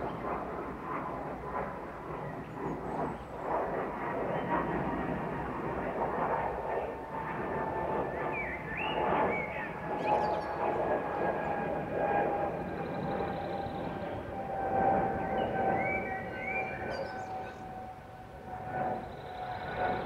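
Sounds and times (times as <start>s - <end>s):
jet airliner passing overhead: 0.0s - 20.0s
small birds chirping: 15.3s - 17.7s.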